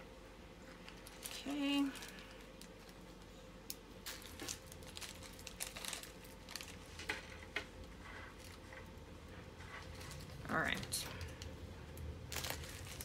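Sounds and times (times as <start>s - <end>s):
plastic bag crinkling: 0.8s - 8.8s, 9.7s - 13.0s.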